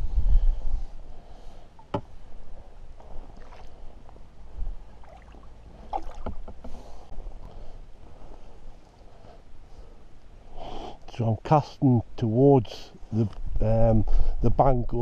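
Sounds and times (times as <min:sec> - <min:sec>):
wind rumble on microphone: 0:00.0 - 0:01.3, 0:02.2 - 0:05.2, 0:13.3 - 0:15.0
water sloshing and splashing: 0:03.0 - 0:04.1, 0:04.8 - 0:06.8.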